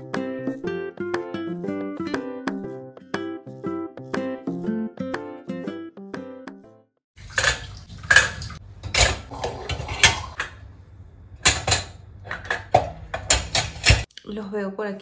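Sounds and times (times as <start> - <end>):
dishes and cutlery clattering: 7.2 - 10.6, 11.4 - 14.1.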